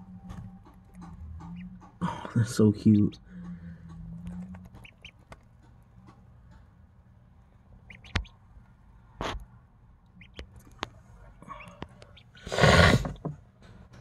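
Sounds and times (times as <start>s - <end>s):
ducklings peeping: 0.0s - 6.7s, 7.7s - 8.5s, 10.0s - 12.5s.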